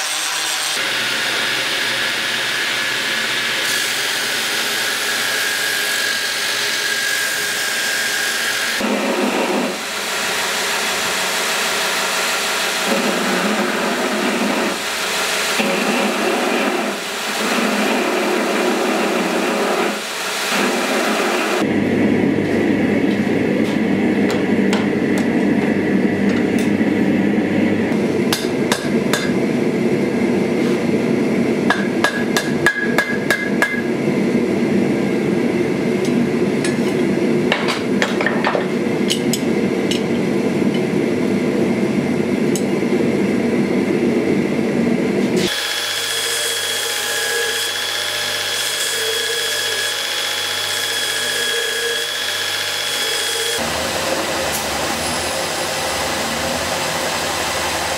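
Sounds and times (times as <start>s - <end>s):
gas forge burner rushing: 8.8s - 47.6s, 50.6s - 57.9s
hammer striking steel on anvil: 28.3s - 29.4s, 31.7s - 33.9s
belt grinder whining: 45.4s - 57.9s.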